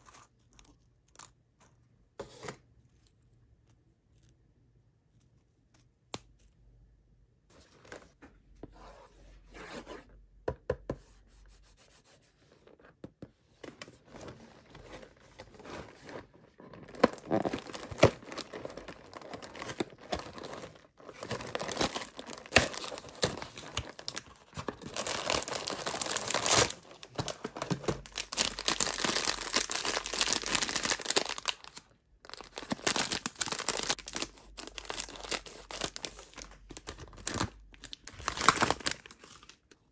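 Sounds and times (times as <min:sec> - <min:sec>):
plastic pouch crinkling: 0:14.7 - 0:39.7
cardboard box tearing: 0:16.8 - 0:24.1.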